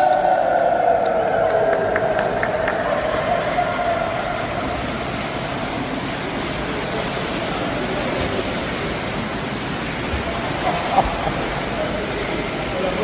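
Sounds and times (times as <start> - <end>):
water splashing from swimming: 0.0 - 13.0.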